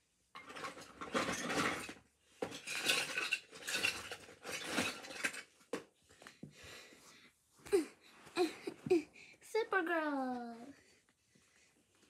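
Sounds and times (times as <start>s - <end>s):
small hard objects clinking: 0.4s - 5.5s.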